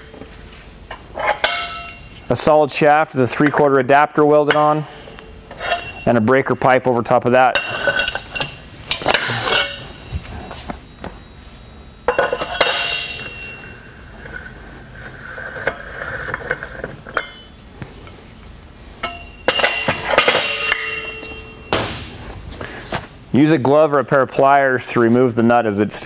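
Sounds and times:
metal tools clanking: 0.9 - 2.4, 4.4 - 6.8, 7.4 - 10.5, 12.1 - 14.5, 15.4 - 17.6, 19.0 - 21.8
ringing metallic knocks: 19.0 - 21.9.

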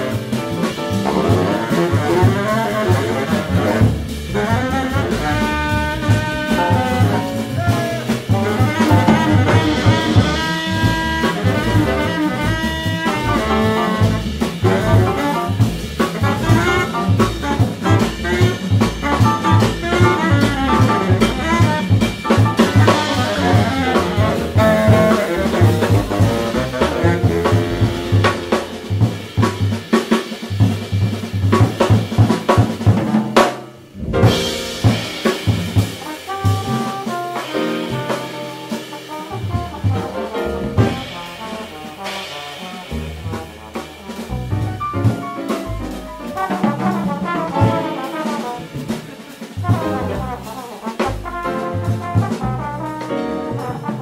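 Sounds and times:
baritone saxophone: 0.0 - 29.1, 34.1 - 54.0
double bass: 0.0 - 54.0
drum kit: 0.0 - 54.0
piano: 0.0 - 54.0
trombone: 0.0 - 54.0.

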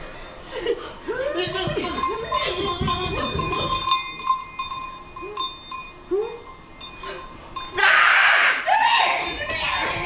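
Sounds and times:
small metal bells ringing: 1.4 - 7.9, 8.8 - 10.0.

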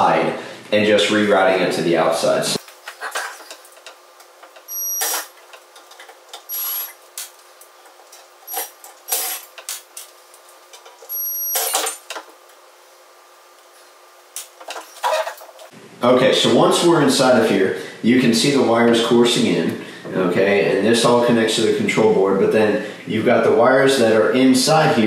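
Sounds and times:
cordless drill whining: 6.5 - 7.0.

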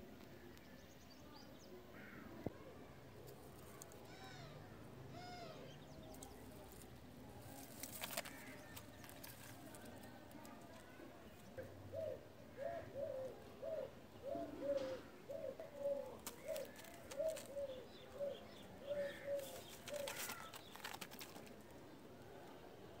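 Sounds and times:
pigeons cooing: 11.5 - 21.4.

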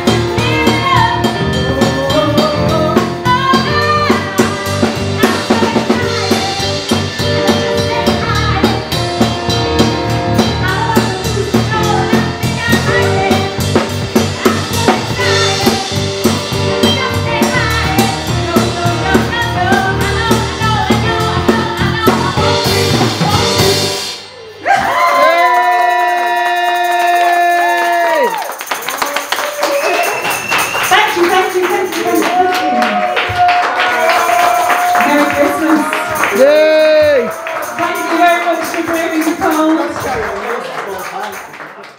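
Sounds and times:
woman singing: 0.0 - 9.3, 10.4 - 23.9, 34.9 - 36.4
electric bass: 0.0 - 24.7
drum kit beat: 0.0 - 40.5.

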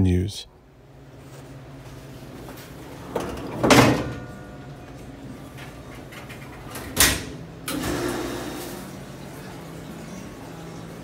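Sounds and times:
steady machine hum: 0.0 - 11.0
dishwasher starting wash: 7.7 - 11.0.

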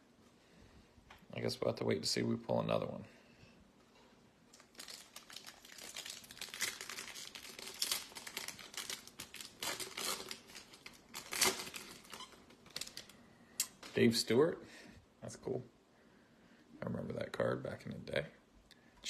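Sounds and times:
foil wrapper crinkling and tearing: 4.5 - 13.2.

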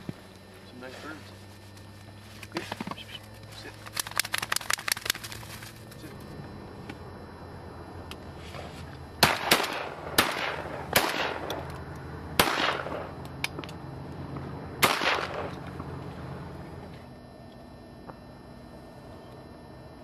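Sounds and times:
shotgun blasts: 9.2 - 11.5, 12.4 - 13.1, 14.8 - 15.6
rolling echo: 9.2 - 16.8.

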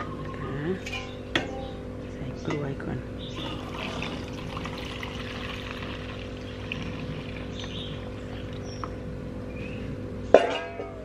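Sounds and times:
liquid pouring through funnel: 3.4 - 8.9
faint trickling and splashes: 3.4 - 9.0.

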